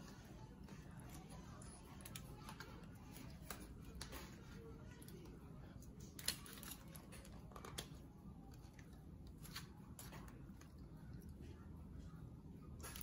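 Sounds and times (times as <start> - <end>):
aluminium foil crinkling: 6.0 - 10.8.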